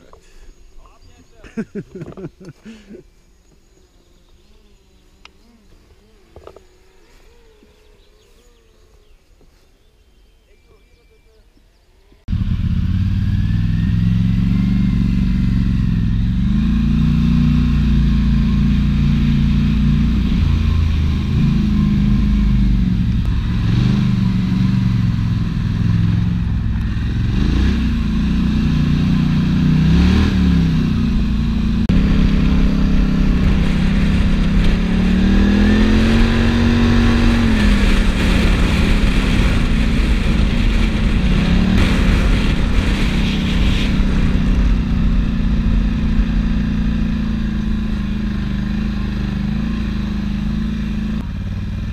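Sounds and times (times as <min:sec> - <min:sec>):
quad bike engine revving: 0:12.3 - 0:51.9.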